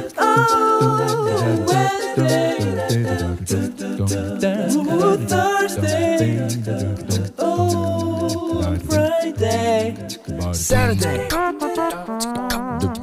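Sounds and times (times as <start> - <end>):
a cappella voices singing: 0.0 - 13.0
low sung bass line: 0.4 - 11.4.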